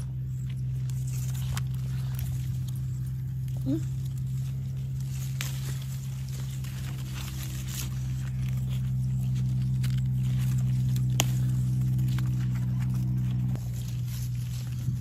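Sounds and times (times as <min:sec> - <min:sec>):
leaves rustling: 0:00.0 - 0:15.0
low hum: 0:00.0 - 0:15.0
pods snapping off plants: 0:09.4 - 0:13.8.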